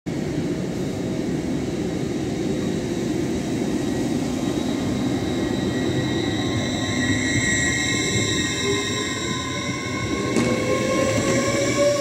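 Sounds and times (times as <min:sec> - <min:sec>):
train wheels rumbling on rail: 0:00.1 - 0:12.0.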